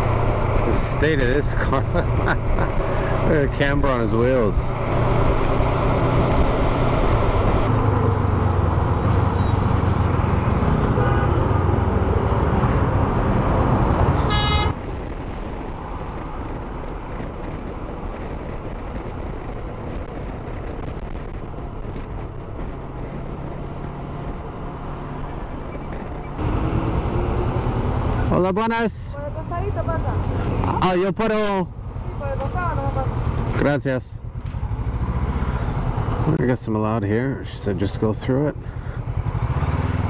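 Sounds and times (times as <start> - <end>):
motorcycle engine: 0.0 - 14.9, 16.6 - 28.3, 31.8 - 36.3, 38.6 - 40.0
traffic noise: 0.0 - 40.0
vehicle horn: 10.8 - 11.5, 14.1 - 14.8.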